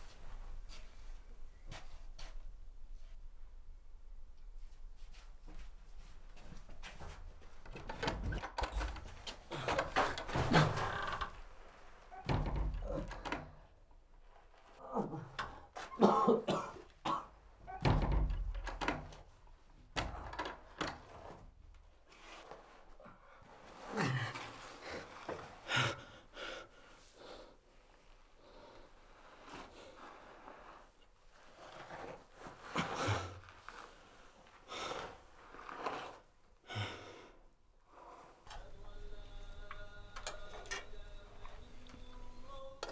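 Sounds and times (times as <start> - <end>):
knocks and thumps of door fastening: 7.7 - 11.3, 12.2 - 13.6, 17.7 - 19.2
heavy door thudding shut: 12.2 - 13.4, 17.8 - 19.1.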